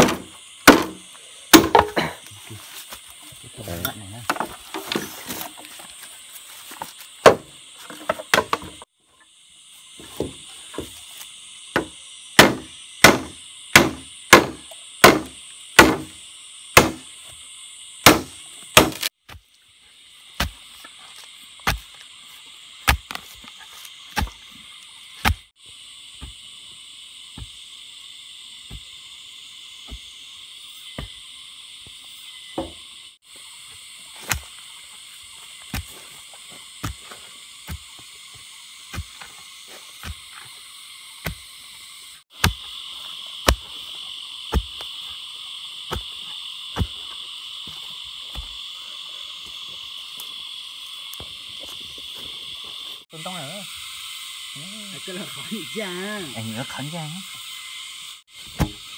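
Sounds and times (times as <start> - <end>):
blade chopping bamboo: 0.0 - 2.1, 6.8 - 8.8, 11.8 - 16.2, 16.8 - 17.1, 18.0 - 19.4, 21.6 - 22.0, 22.8 - 24.4, 25.2 - 25.5, 34.2 - 34.5, 42.3 - 42.8, 43.4 - 43.7, 58.4 - 58.9.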